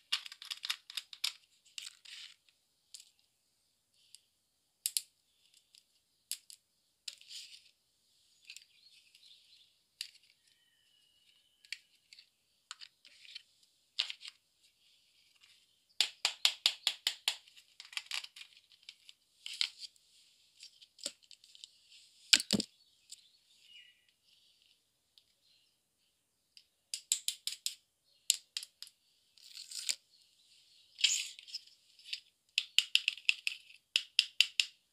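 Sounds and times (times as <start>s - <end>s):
plastic toys clicking on table: 0.1s - 2.0s, 4.9s - 7.2s, 16.0s - 19.0s, 26.9s - 28.9s, 32.5s - 34.8s.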